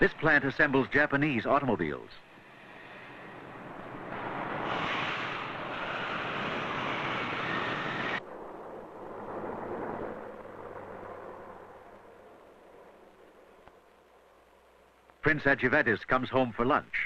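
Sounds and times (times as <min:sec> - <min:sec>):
street background hiss: 0:00.0 - 0:17.0
factory machinery hissing: 0:02.2 - 0:08.2.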